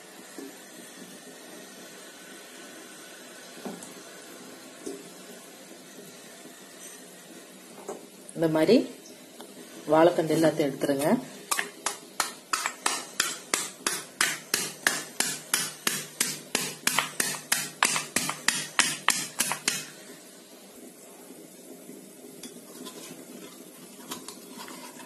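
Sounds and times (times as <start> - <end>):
pestle pounding in stone mortar: 11.5 - 19.9.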